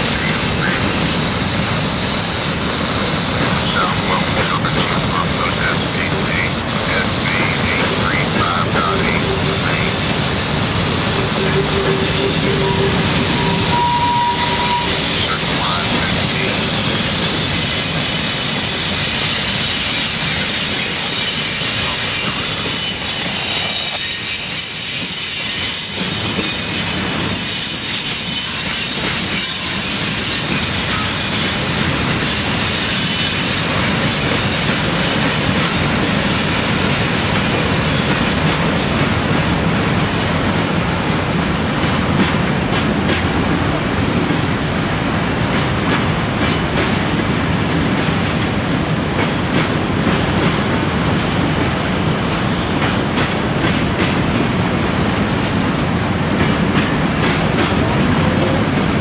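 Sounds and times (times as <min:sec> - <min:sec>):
freight cars rolling on rails: 0:00.0 - 0:59.0
wheel squeal: 0:11.1 - 0:15.3.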